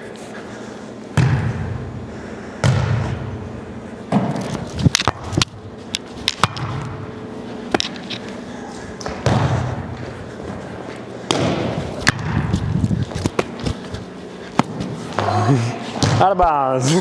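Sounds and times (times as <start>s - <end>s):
sneakers scuffing on gym floor: 4.1s - 16.3s.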